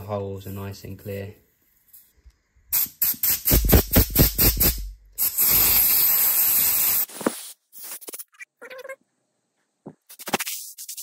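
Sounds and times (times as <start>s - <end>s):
compressed air blow gun blast: 2.7s - 7.5s
aerosol cleaner hissing spurts: 2.7s - 8.1s.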